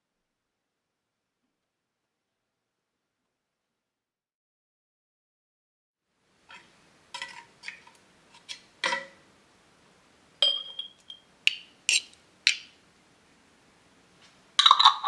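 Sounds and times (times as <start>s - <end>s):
dish ringing with clear tone: 10.4s - 11.2s
dishes clinking against glass: 10.4s - 11.3s
clatter of dishes: 14.6s - 15.0s.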